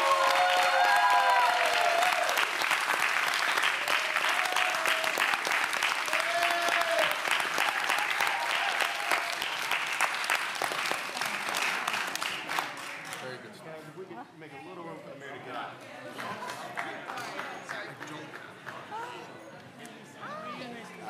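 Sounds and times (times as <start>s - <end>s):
voices cheering: 0.0s - 2.6s, 3.8s - 9.8s
crowd applauding: 0.0s - 13.4s, 16.1s - 19.3s.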